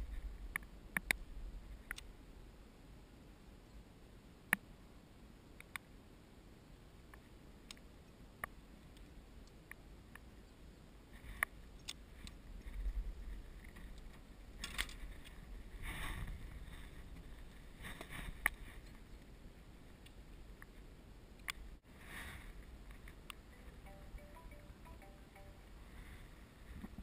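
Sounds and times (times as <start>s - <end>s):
faint clicks: 1.8s - 2.1s.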